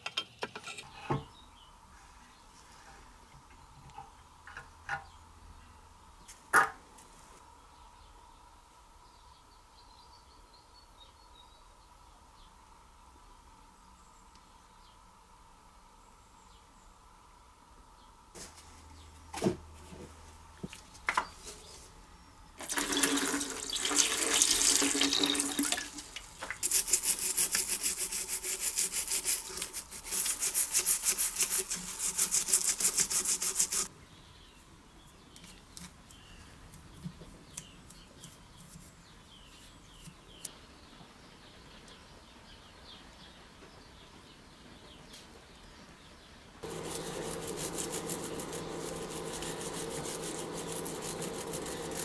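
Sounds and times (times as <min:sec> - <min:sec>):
plastic scraper scraping grime: 0:26.6 - 0:33.9, 0:46.6 - 0:52.0.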